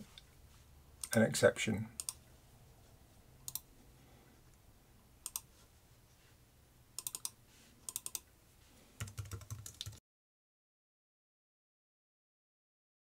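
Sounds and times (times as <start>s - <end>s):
keyboard keystrokes: 9.0s - 10.0s.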